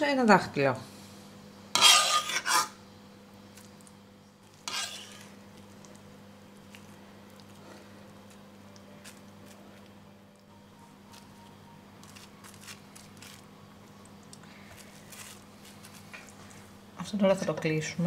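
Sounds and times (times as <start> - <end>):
low steady hum: 0.0 - 18.0
spatula scraping over cling film: 1.7 - 2.8, 4.4 - 5.4, 12.0 - 13.5, 14.5 - 16.3
metal spoon scraping pot: 1.8 - 2.8, 4.6 - 5.3.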